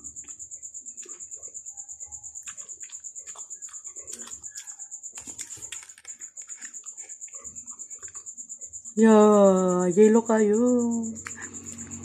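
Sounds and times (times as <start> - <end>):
wet chewing and lip-smacking: 0.0 - 8.9
pulsing high-pitched whine: 8.4 - 12.0.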